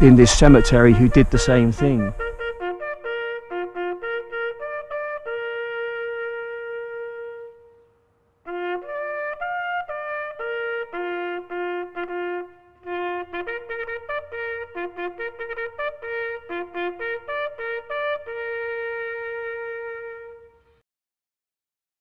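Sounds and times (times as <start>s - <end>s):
solo bugle call: 0.0s - 20.8s.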